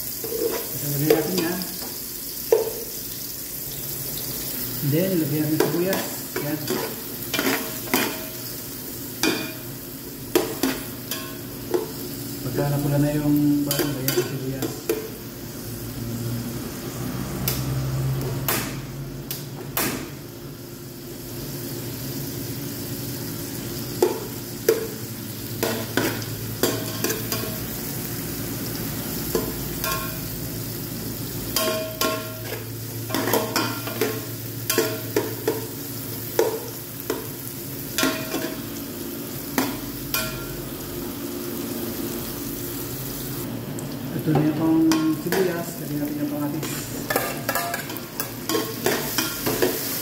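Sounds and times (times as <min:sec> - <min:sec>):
onions sizzling in oil: 0:00.0 - 0:50.0.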